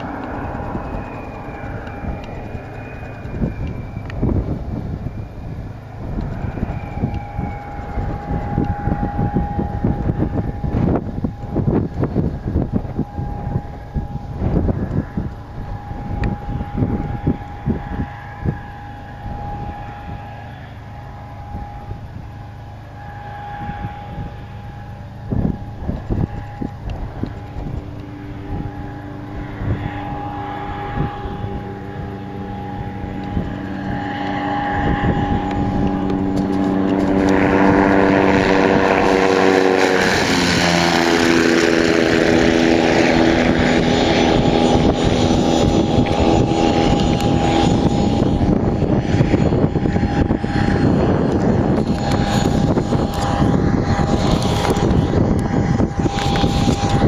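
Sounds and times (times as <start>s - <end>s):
ultralight propeller engine drone: 0.0s - 57.0s.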